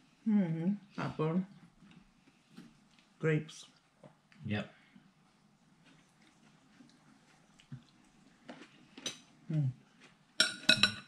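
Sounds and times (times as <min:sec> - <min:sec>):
cutlery and dishes clinking: 0:10.4 - 0:11.0.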